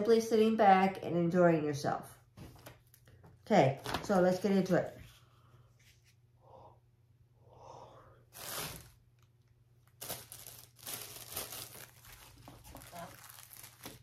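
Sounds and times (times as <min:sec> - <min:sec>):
packaging rustling and tearing: 0:08.4 - 0:14.0.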